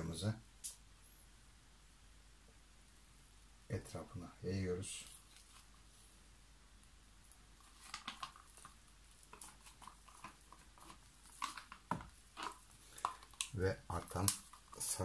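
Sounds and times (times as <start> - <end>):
stir stick scraping cup: 8.1 - 15.0.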